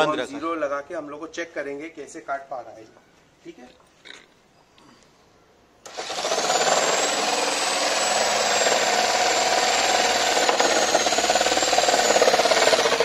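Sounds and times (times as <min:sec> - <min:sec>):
electric jigsaw cutting wood: 0:05.8 - 0:13.0.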